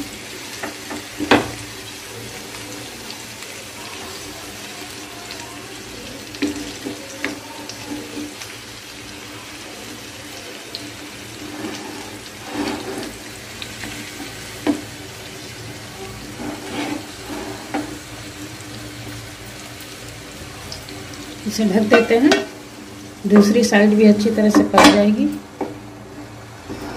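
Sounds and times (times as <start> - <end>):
fish sizzling in oil: 0.0 - 26.9
spatula scraping and knocking pan: 11.4 - 13.2, 16.3 - 17.9.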